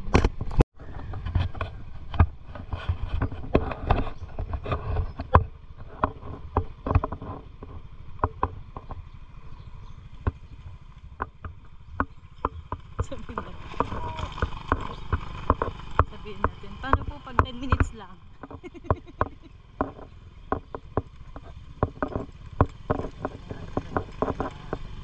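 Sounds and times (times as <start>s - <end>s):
sharp knocks and rattles: 0.0s - 25.0s
scooter engine running: 1.6s - 25.0s.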